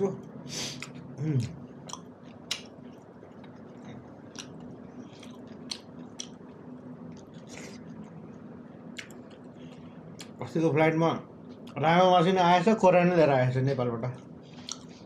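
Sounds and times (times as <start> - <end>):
faint steady hum: 0.0 - 15.0
man chewing with mouth smacks: 0.7 - 10.4, 14.2 - 15.0.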